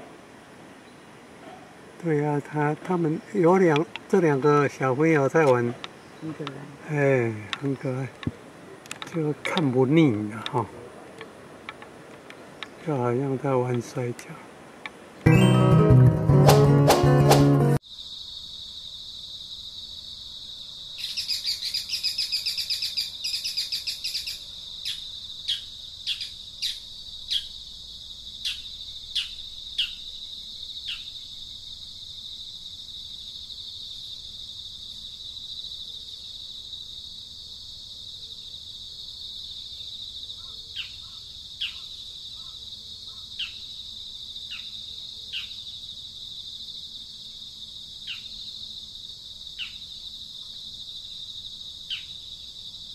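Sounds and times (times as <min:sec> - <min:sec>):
downward-sliding whistled notes: 0:15.3 - 0:17.8
high insect buzz: 0:17.3 - 0:52.9.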